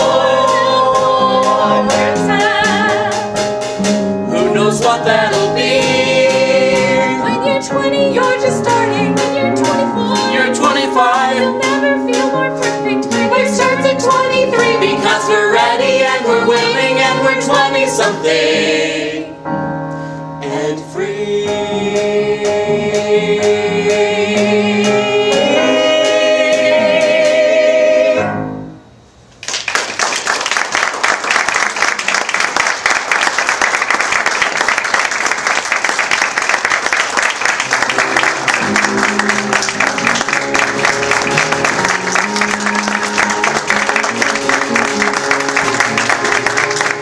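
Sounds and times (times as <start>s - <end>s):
musical accompaniment with beat: 0.0s - 27.7s, 37.6s - 47.0s
cast singing: 4.3s - 19.4s
audience applause: 29.4s - 47.0s.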